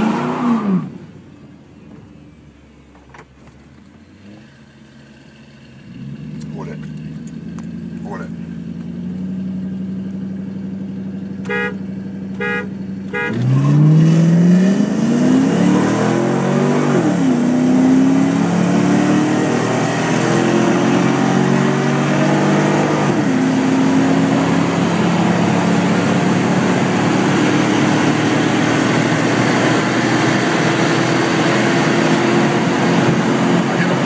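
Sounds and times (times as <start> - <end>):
car engine accelerating hard: 0.0 - 1.1, 4.0 - 34.0
road and wind noise: 0.0 - 34.0.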